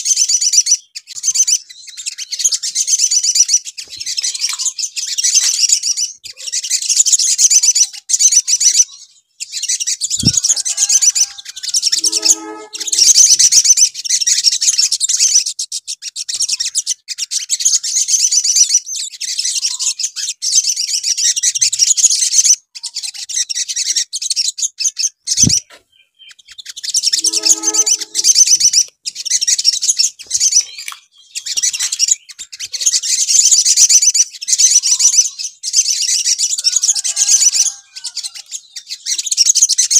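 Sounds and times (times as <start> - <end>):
sunbirds twittering: 0.0 - 39.9
short lower bird call: 27.2 - 28.6.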